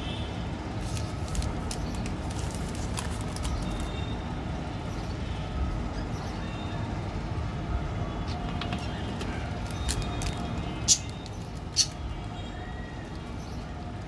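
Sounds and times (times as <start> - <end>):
plastic wrapper crinkling and tearing: 0.8 - 4.0.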